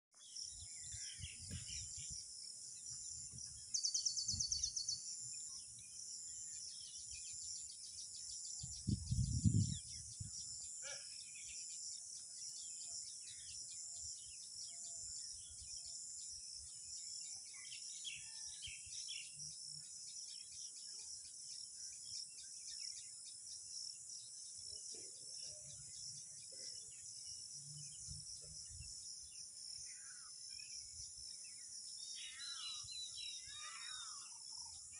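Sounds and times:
bird chirps: 0.1s - 34.9s
high insect drone: 26.8s - 34.9s.

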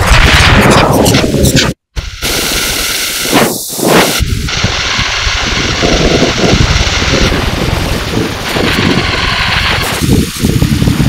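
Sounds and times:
harsh dense noise texture: 0.0s - 11.0s.

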